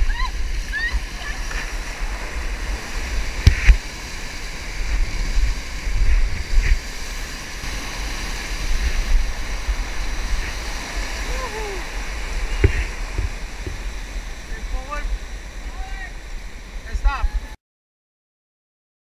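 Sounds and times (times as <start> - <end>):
whitewater rapids rushing: 0.0 - 17.6
wind buffeting microphone: 0.0 - 17.6
sharp knocks: 12.6 - 13.9.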